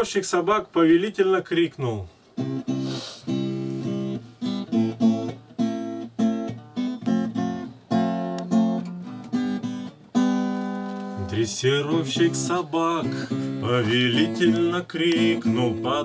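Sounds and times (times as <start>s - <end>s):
acoustic guitar strumming: 2.4s - 16.0s.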